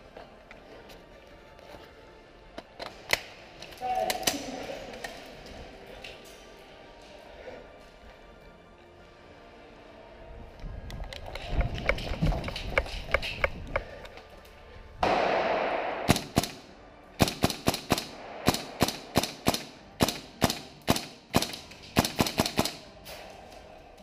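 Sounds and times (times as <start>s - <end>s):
airsoft rifle shots: 15.0s - 23.0s.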